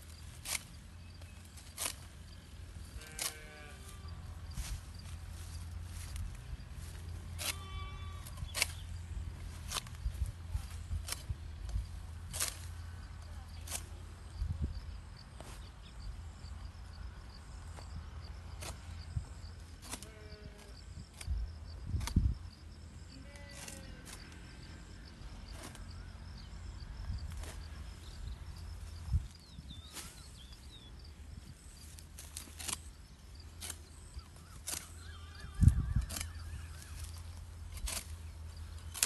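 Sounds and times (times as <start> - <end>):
faint animal calls: 34.0 - 37.4.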